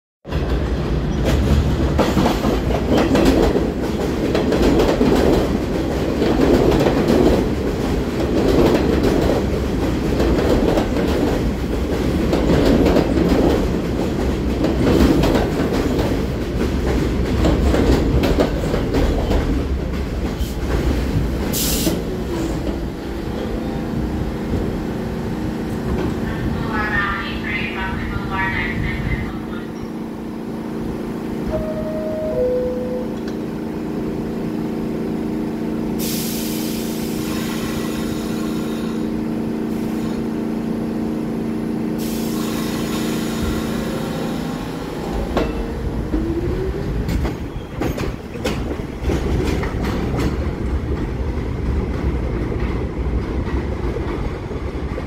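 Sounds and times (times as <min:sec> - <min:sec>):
subway train rumbling: 0:00.2 - 0:55.0
stopped train humming: 0:00.3 - 0:55.0.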